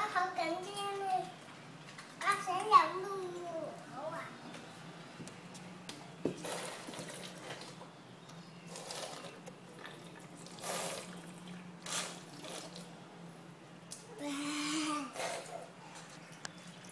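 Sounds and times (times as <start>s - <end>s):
children slurping liquid: 6.4s - 7.8s, 8.6s - 12.9s, 14.2s - 16.9s.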